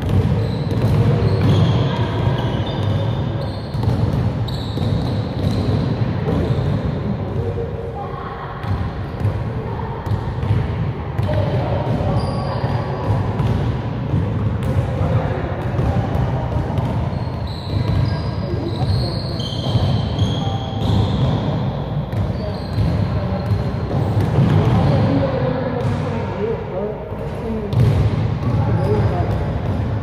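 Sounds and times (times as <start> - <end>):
basketball bouncing on gym floor: 0.0 - 7.5, 8.6 - 26.2, 27.6 - 30.0
sneaker squeaks: 0.0 - 7.5, 11.2 - 13.6, 15.7 - 26.0, 27.5 - 29.8.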